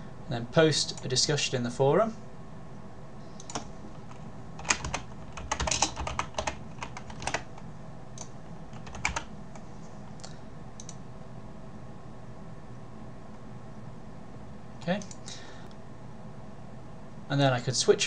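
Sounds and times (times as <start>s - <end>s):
typing on computer keyboard: 3.4s - 7.6s, 8.2s - 9.3s.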